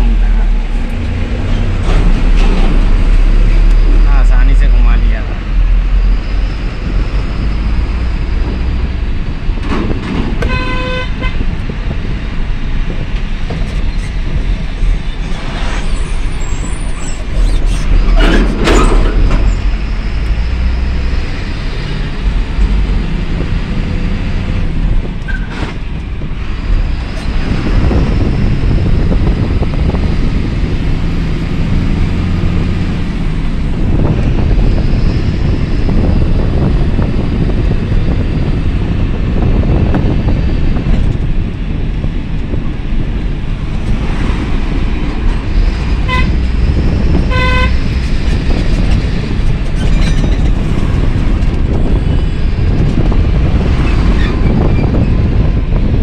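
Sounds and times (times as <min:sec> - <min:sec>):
truck engine running: 0:00.0 - 0:04.7, 0:11.2 - 0:56.0
road noise: 0:00.0 - 0:56.0
horn toot: 0:10.4 - 0:11.4, 0:46.0 - 0:46.4, 0:47.2 - 0:47.9.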